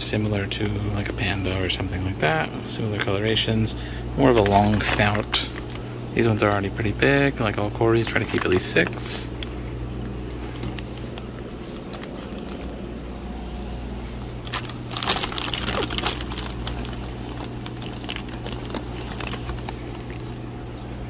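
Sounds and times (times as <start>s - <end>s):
steady low hum: 0.0s - 21.0s
plastic bags crinkling: 4.2s - 7.0s, 7.8s - 9.6s, 10.2s - 13.3s, 14.2s - 20.6s.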